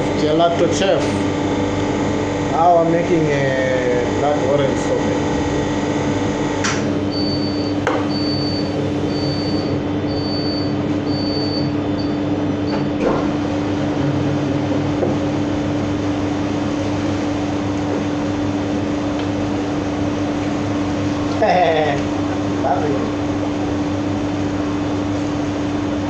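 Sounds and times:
freezer machine humming: 0:00.0 - 0:26.0.

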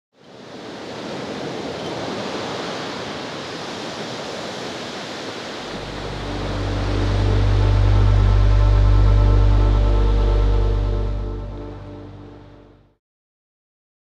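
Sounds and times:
sea waves washing: 0:00.3 - 0:12.6
low musical drone: 0:05.7 - 0:12.9.

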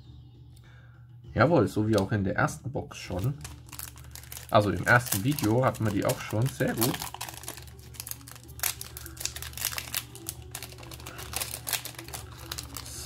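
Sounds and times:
foil wrapper crinkling: 0:03.1 - 0:13.0.

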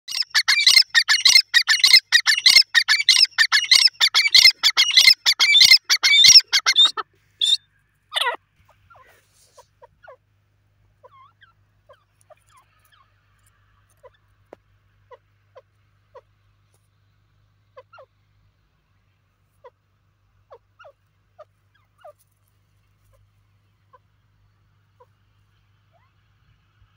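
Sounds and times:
bird calling harsh repeated notes: 0:00.1 - 0:10.2.

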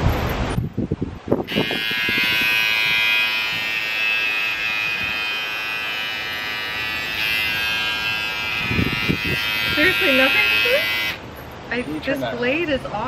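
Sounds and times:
electric hair clippers buzzing: 0:01.4 - 0:11.2.

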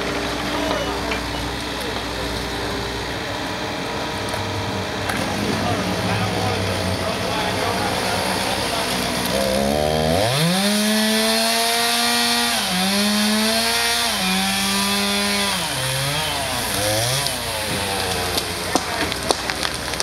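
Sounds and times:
chainsaw cutting wood: 0:06.4 - 0:20.0.

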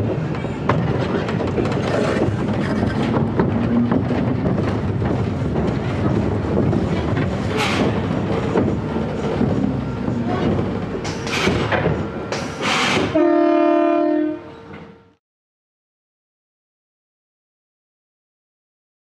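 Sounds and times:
roller coaster rumbling on track: 0:00.0 - 0:15.0.

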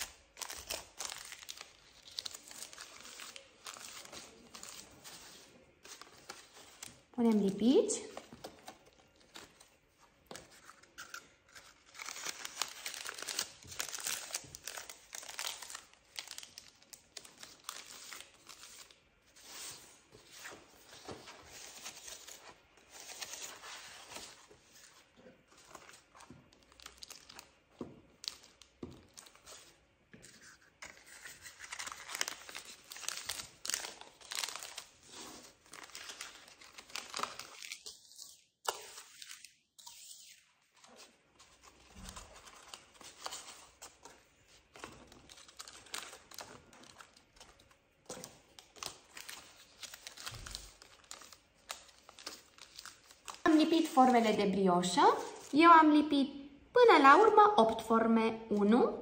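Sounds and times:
paper liners rustling and crinkling: 0:00.0 - 0:54.4.

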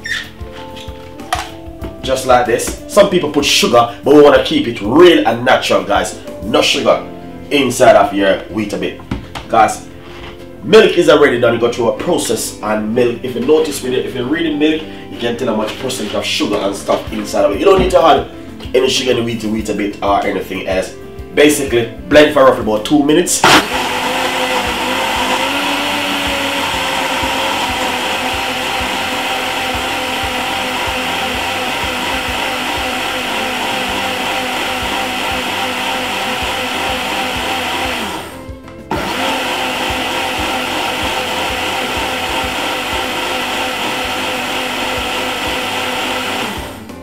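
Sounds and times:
blender running: 0:23.4 - 0:47.0.

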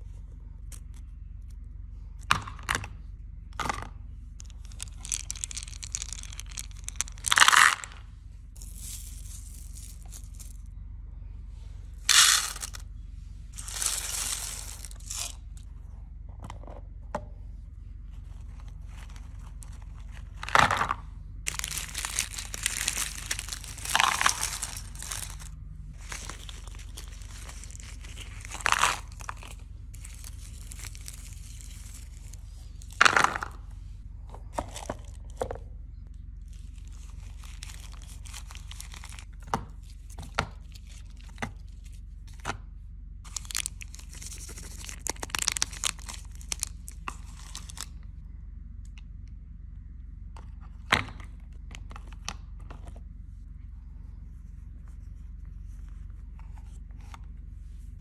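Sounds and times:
candy wrappers crinkling: 0:04.4 - 0:08.0, 0:08.6 - 0:10.7, 0:12.1 - 0:12.8, 0:13.6 - 0:15.7, 0:21.5 - 0:33.2, 0:36.4 - 0:41.9, 0:43.3 - 0:48.0
sweets clacking into plastic box: 0:21.5 - 0:30.9.

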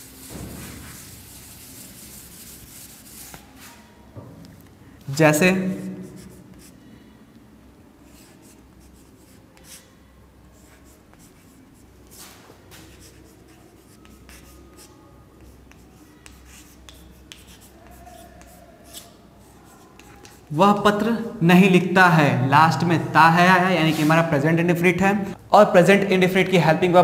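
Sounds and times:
chalk scratching on blackboard: 0:00.0 - 0:03.9, 0:05.6 - 0:06.8, 0:08.1 - 0:09.9, 0:10.6 - 0:20.5, 0:23.8 - 0:24.3.

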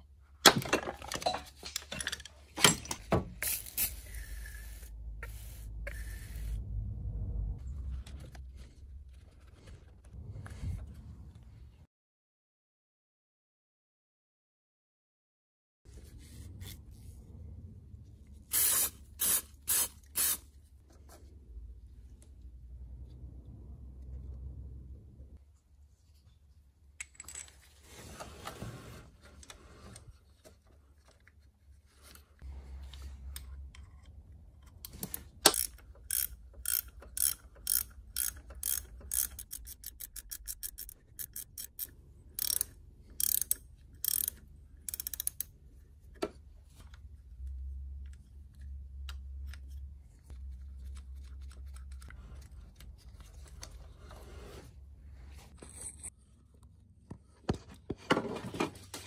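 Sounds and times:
ratchet wrench clicking: 0:35.0 - 0:45.5.

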